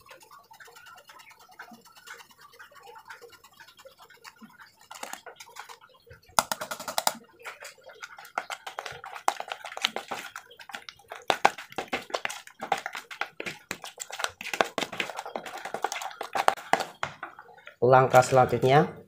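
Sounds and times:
hands squelching bait mix: 7.4 - 17.3.

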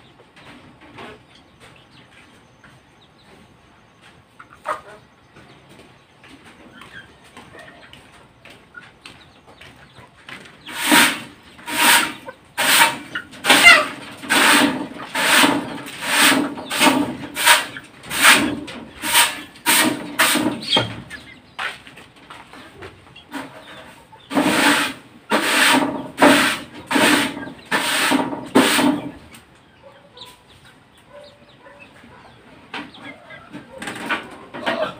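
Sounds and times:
hand broom sweeping wire cage: 10.6 - 21.8, 23.3 - 29.4.

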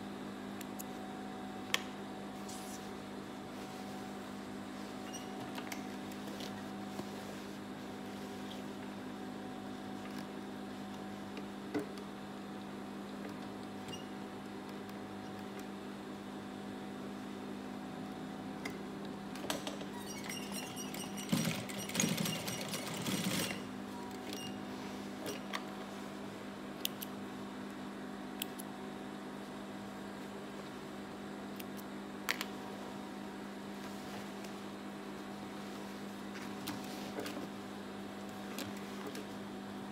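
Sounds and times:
sewing machine stitching: 20.2 - 23.6.

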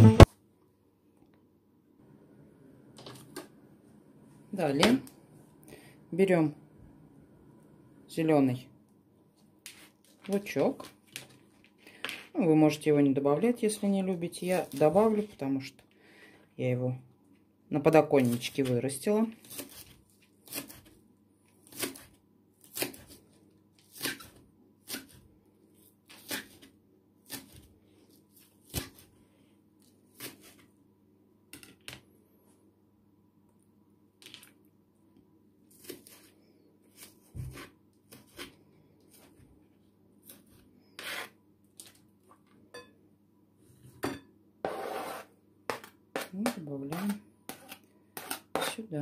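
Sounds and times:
knife scraping across board: 37.0 - 39.4, 40.3 - 41.4, 44.6 - 45.9, 46.9 - 48.8.

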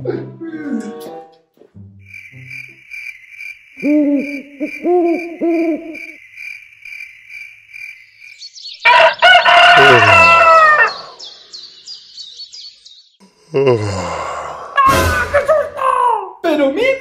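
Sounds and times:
owl hooting: 2.1 - 7.0
high even chirping: 2.1 - 8.9
rooster crowing: 8.8 - 11.2.

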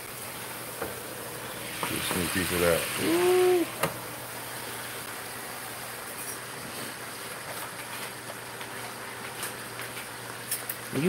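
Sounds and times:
water boiling in a pot: 0.0 - 11.0
person humming: 3.0 - 3.8.

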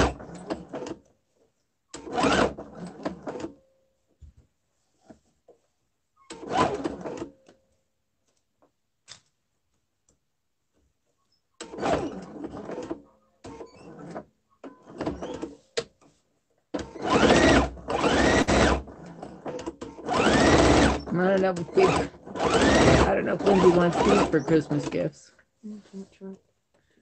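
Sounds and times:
electric sewing machine stitching: 0.0 - 1.0, 1.9 - 3.6, 6.3 - 7.3, 11.6 - 15.5, 16.8 - 25.1.

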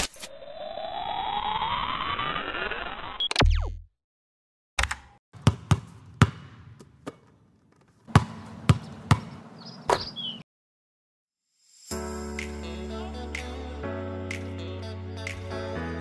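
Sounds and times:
basketball bouncing on hard floor: 5.4 - 10.1.

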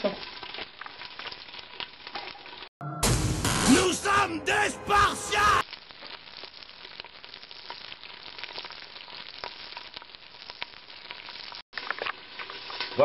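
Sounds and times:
crackling pops: 0.0 - 2.7, 5.6 - 13.0
onions sizzling in hot oil: 0.0 - 2.8, 5.6 - 13.0.

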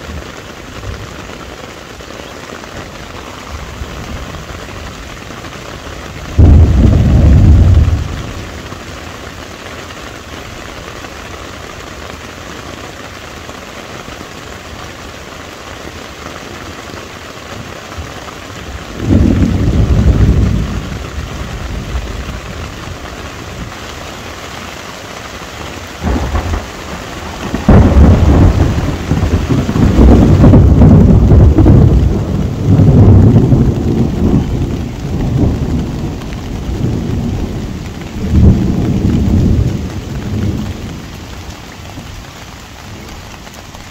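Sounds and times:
heavy rain on a tent: 0.0 - 43.9
thunder rumbling: 3.2 - 8.7, 18.6 - 23.8, 26.0 - 43.4.

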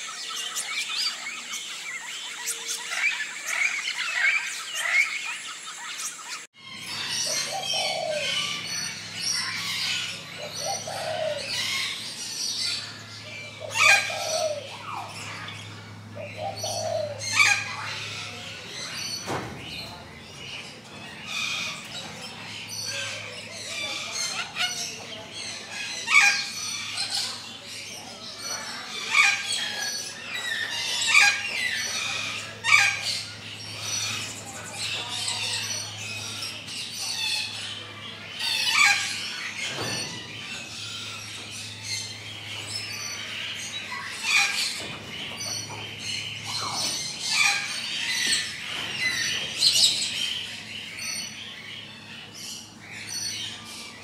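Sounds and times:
dense chorus of bird calls: 0.0 - 54.0
loud sharp bird calls: 0.0 - 54.0.

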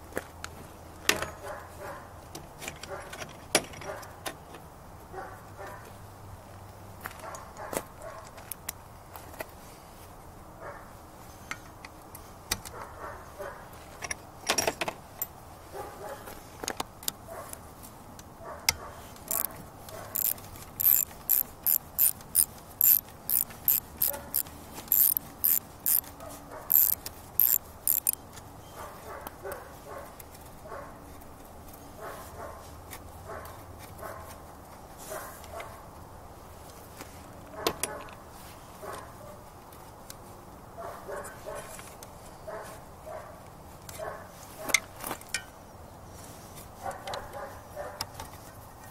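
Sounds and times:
ratchet wrench clicking: 19.3 - 26.1, 26.7 - 28.2.

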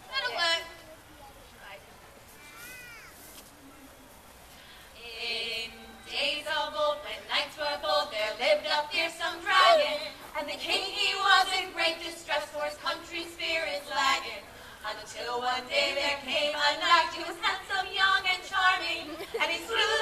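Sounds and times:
women singing unaccompanied: 0.0 - 0.8, 5.0 - 20.0.

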